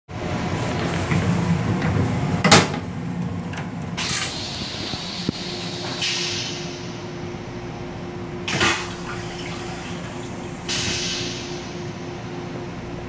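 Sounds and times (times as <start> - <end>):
steady hum: 0.1 - 13.0
toilet flush whoosh: 8.5 - 11.8.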